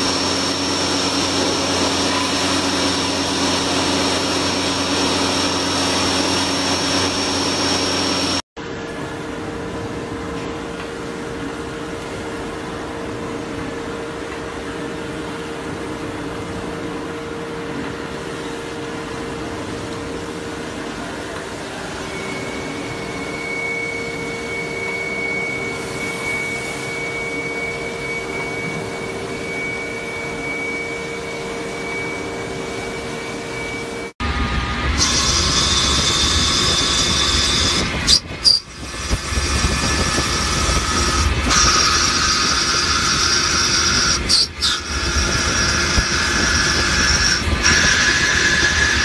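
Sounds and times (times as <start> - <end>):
machine tool humming: 0.0 - 8.4, 22.2 - 49.0
thin high whine: 0.0 - 8.4, 17.4 - 49.0.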